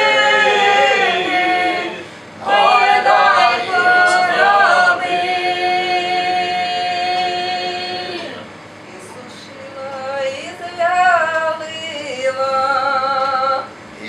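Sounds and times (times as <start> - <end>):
choir singing a cappella: 0.0 - 8.5
singer breathing: 2.0 - 2.4.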